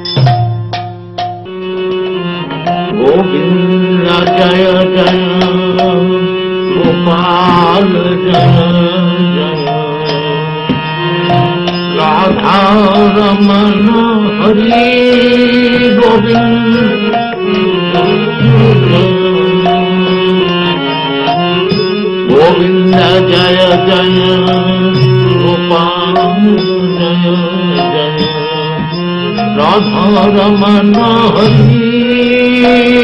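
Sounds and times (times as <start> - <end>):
melody with wavering ornaments: 0.0 - 33.0.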